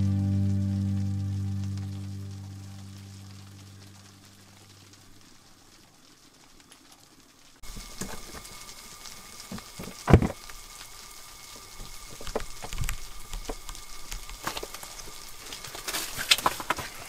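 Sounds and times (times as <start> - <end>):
small clicks: 11.8 - 16.8.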